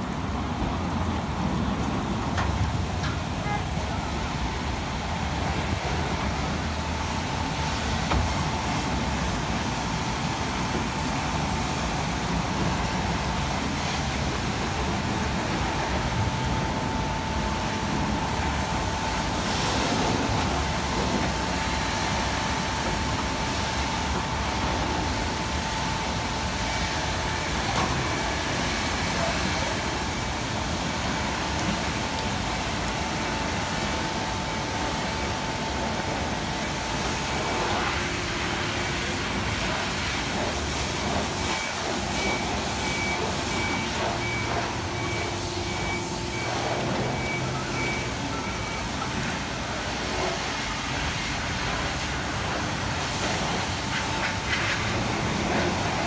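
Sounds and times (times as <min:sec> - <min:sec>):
thin steady whine: 0:00.0 - 0:56.0
car wash brushes scrubbing: 0:49.9 - 0:56.0.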